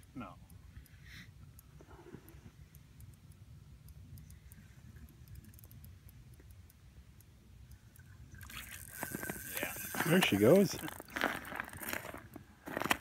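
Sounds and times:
fishing reel clicking: 3.0 - 6.7, 7.7 - 12.4.

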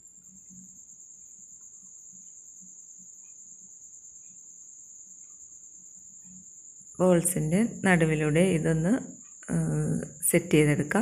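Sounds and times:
low background hum: 0.0 - 11.0
soft faint ticks: 3.0 - 7.0, 9.1 - 10.2.

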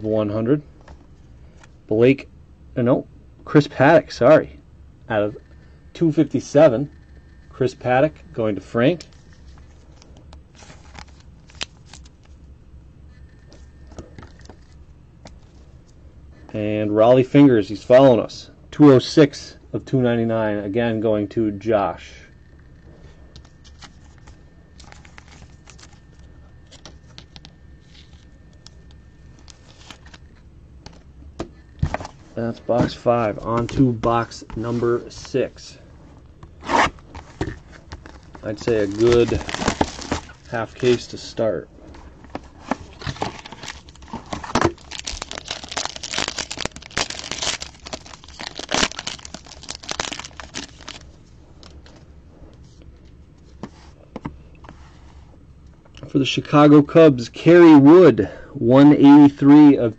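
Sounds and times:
low steady hum: 0.0 - 59.9
plastic wrapping crinkling and tearing: 10.5 - 12.3, 23.6 - 28.2, 36.7 - 41.1, 42.4 - 51.1
trading cards clicking and rustling: 42.2 - 51.0.

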